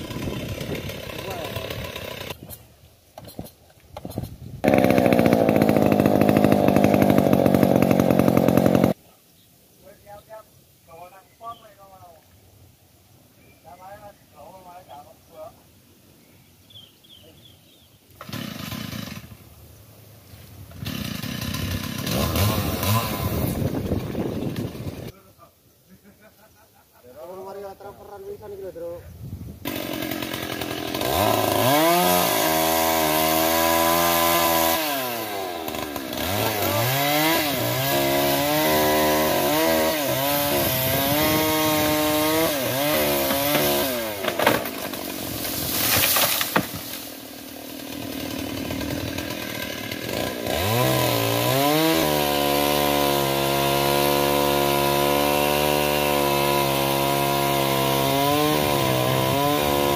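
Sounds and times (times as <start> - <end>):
chainsaw cutting wood: 0.0 - 9.0, 18.1 - 19.4, 20.7 - 25.1, 29.6 - 59.9.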